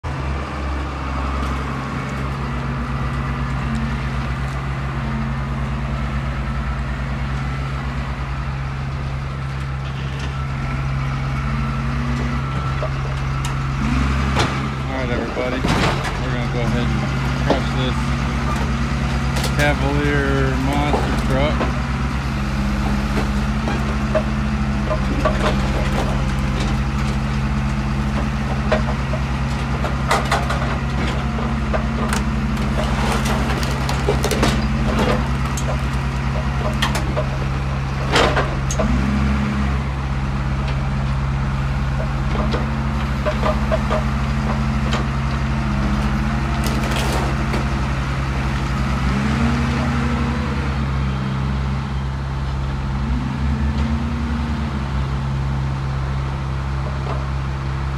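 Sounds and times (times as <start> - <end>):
heavy diesel machinery running: 0.0 - 57.9
metal clanks and cracks: 18.5 - 21.8, 23.1 - 27.4, 28.1 - 38.9, 41.9 - 47.8.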